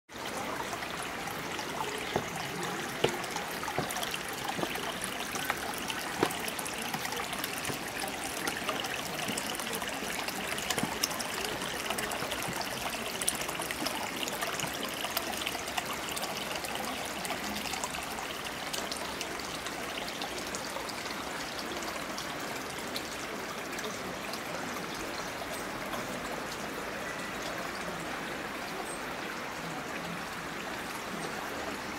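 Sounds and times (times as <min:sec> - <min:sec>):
small water splashes: 0:00.1 - 0:31.9
water trickling into stone basin: 0:00.1 - 0:31.9.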